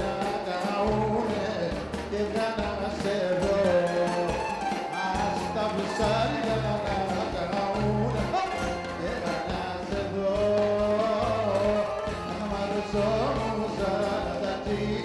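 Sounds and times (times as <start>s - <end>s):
bouzouki melody: 0.0s - 15.0s
drums: 0.0s - 15.0s
held bass notes: 0.0s - 15.0s.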